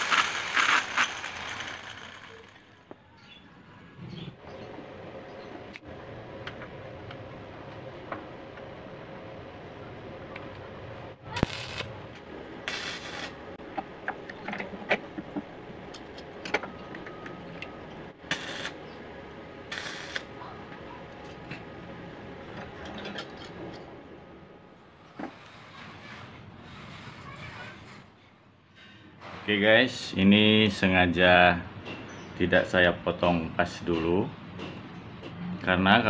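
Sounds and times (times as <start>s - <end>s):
arc welder crackling: 0.0s - 3.0s, 11.3s - 13.6s, 18.2s - 18.9s, 19.6s - 20.4s.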